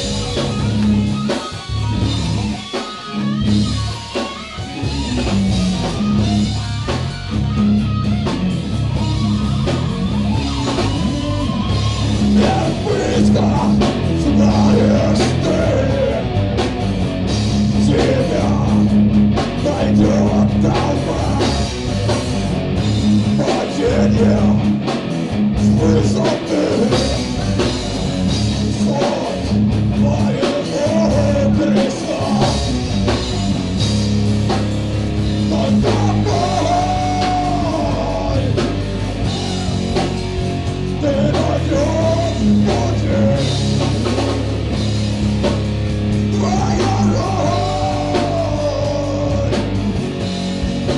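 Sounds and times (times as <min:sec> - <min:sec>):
drum kit: 0:00.0 - 0:50.9
electric guitars: 0:00.0 - 0:50.9
person singing into microphone: 0:12.4 - 0:16.3, 0:17.8 - 0:18.9, 0:19.6 - 0:21.7, 0:23.4 - 0:24.7, 0:25.6 - 0:27.2, 0:28.6 - 0:32.6, 0:35.5 - 0:38.7, 0:41.0 - 0:43.6, 0:46.3 - 0:49.8.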